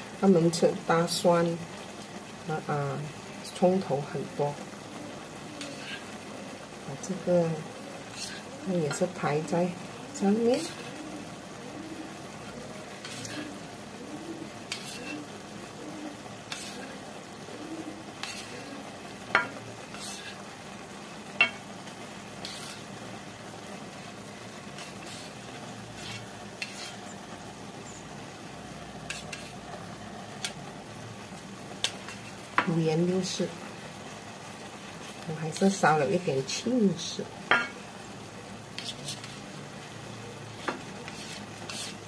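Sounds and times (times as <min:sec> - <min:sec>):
food sizzling in a pan: 0:00.0 - 0:42.0.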